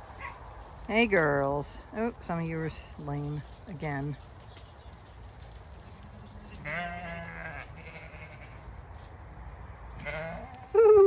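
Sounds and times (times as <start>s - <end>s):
sheep bleating: 6.2s - 8.7s, 10.0s - 10.6s.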